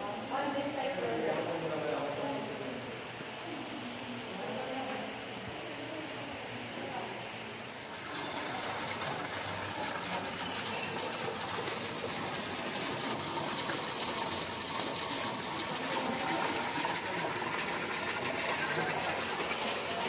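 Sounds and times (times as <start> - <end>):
fountain water splashing: 7.6 - 20.0.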